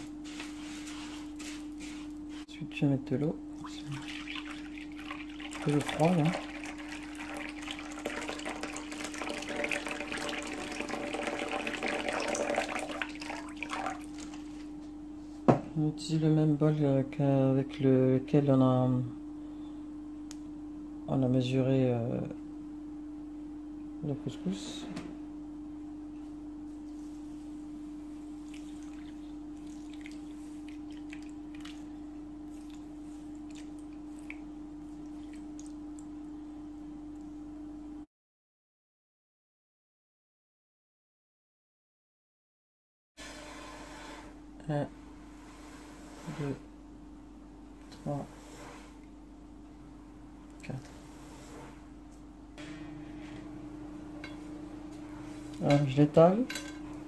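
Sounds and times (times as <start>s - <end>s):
steady hum: 0.0s - 38.1s, 43.2s - 57.0s
water pouring into glass bowl: 3.6s - 14.3s.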